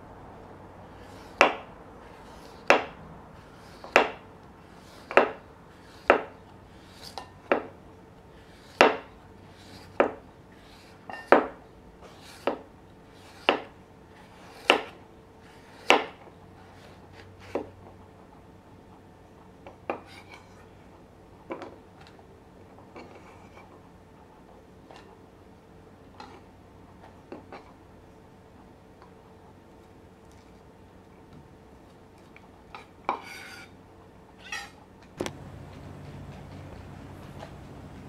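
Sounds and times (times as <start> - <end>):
knife chopping on cutting board: 6.0 - 6.4, 8.8 - 9.1, 13.4 - 13.7, 14.4 - 15.0, 15.7 - 16.2.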